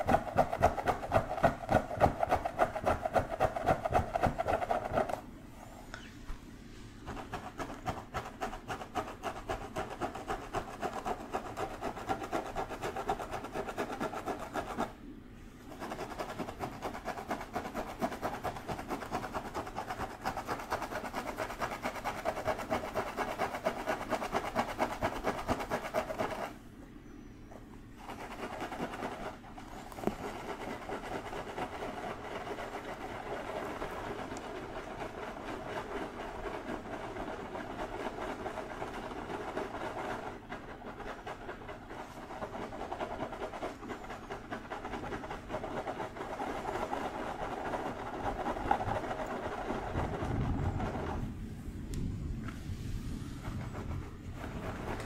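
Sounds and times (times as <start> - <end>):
fingertips scratching through hair: 15.7 - 26.6, 28.0 - 51.3.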